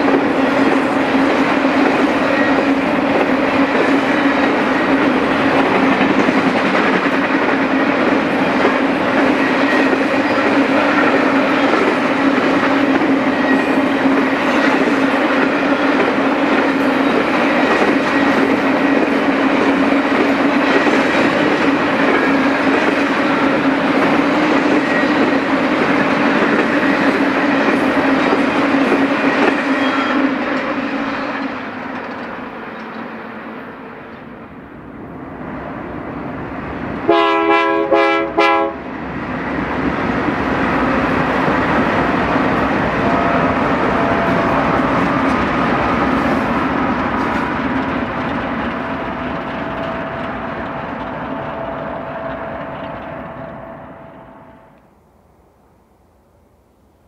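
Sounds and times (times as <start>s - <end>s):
freight train wheels rolling: 0.0s - 54.9s
diesel locomotives passing: 0.0s - 57.0s
train air horn blasts: 37.1s - 38.8s.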